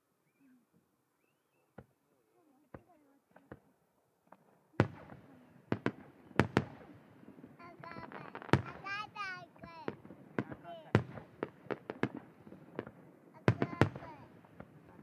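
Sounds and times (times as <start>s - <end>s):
firework bangs with rolling rumble: 4.8s - 15.0s.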